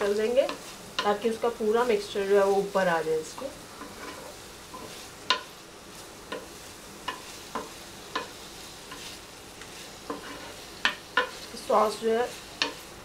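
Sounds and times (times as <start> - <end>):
faint sizzle: 0.0 - 13.0
spatula knocking and scraping pan: 0.3 - 1.2, 3.3 - 5.6, 6.2 - 13.0.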